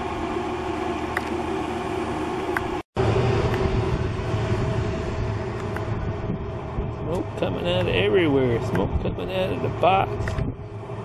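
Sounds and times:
grill fan humming and rushing: 0.0 - 11.0.

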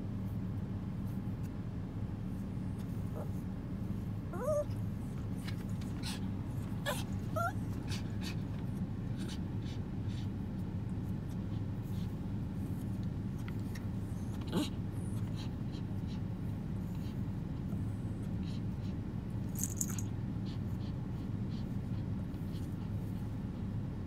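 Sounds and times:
steady low hum: 0.0 - 24.0
dog whimpering: 3.1 - 3.4, 4.3 - 4.8, 6.0 - 8.4, 14.2 - 15.5.

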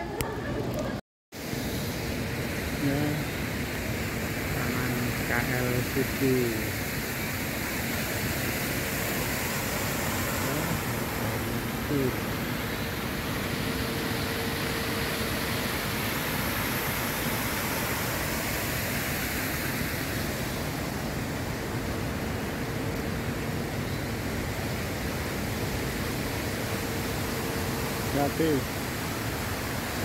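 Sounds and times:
steady outdoor rushing noise: 0.0 - 30.0
faint steady hum: 1.5 - 30.0.

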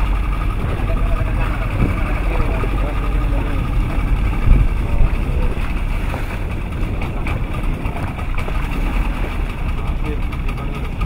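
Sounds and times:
wind noise on microphone: 0.0 - 2.7, 3.7 - 9.3
boat engine running: 0.0 - 11.0.

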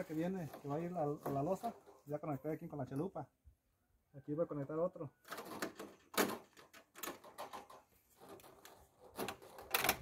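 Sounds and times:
plastic conduit clicks and rattles: 5.3 - 10.0.

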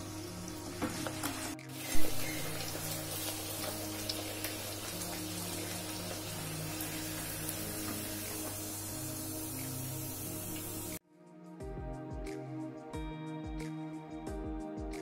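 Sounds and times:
oil sizzling and crackling: 0.0 - 11.0.

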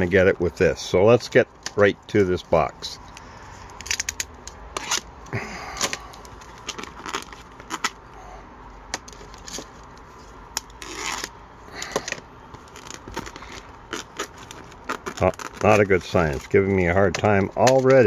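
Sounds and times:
plastic film crinkling: 3.7 - 8.0, 9.0 - 18.0.

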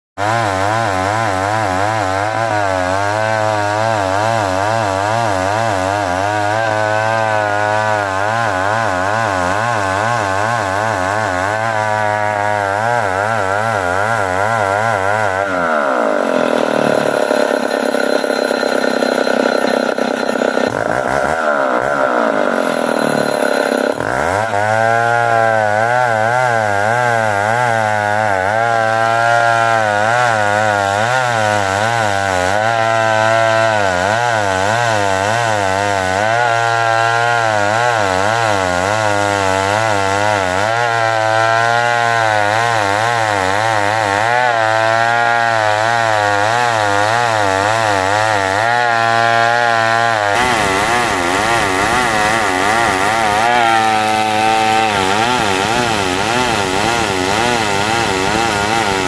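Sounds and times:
chainsaw cutting log: 0.2 - 59.0.

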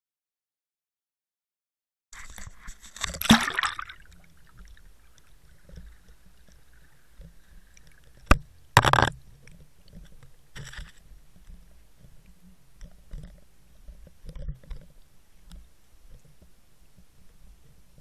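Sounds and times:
water splash: 2.8 - 4.8
rushing bubbling water: 3.2 - 4.8.

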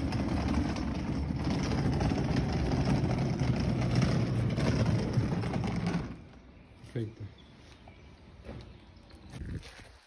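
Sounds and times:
suitcase wheels rattling on concrete: 0.0 - 6.6.

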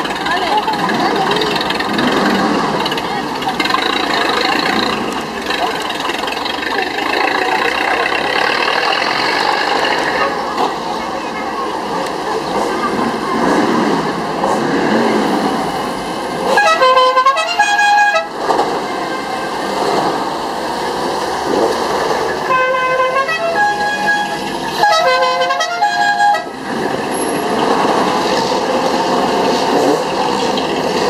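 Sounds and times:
car horn blasts: 16.5 - 18.4, 22.4 - 26.6.

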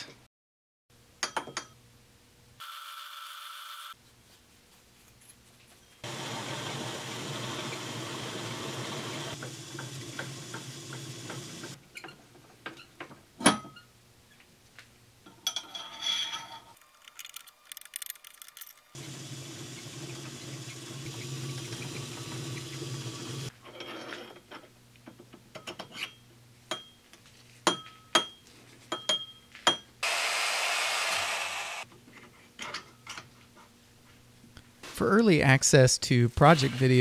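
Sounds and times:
workshop noise: 5.8 - 13.8, 27.6 - 32.4
metal lathe humming: 6.0 - 11.8, 19.0 - 23.5, 30.0 - 31.8
metal clicks: 16.8 - 19.0.

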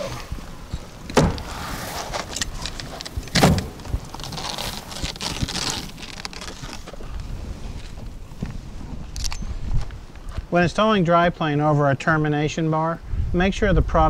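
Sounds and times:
plastic mesh rustling and scraping: 1.2 - 8.2.

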